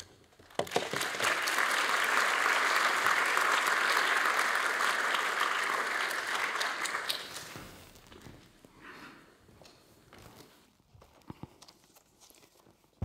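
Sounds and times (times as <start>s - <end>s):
audience applauding: 0.4s - 7.7s.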